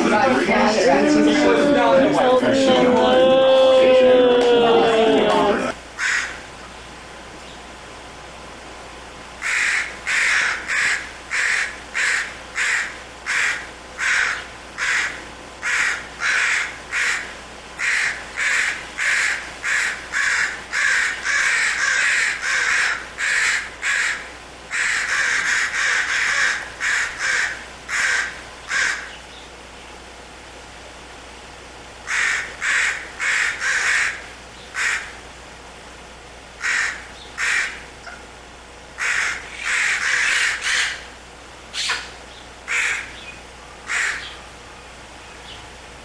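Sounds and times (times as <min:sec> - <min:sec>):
crow cawing: 0:06.0 - 0:06.4, 0:09.4 - 0:29.2, 0:32.0 - 0:35.2, 0:36.6 - 0:38.2, 0:39.0 - 0:41.1, 0:41.8 - 0:43.2, 0:43.8 - 0:44.4.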